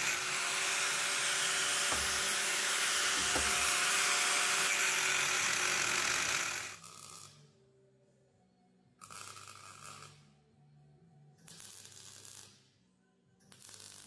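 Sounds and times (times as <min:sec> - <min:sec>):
angle grinder grinding metal tube: 0:00.0 - 0:06.7.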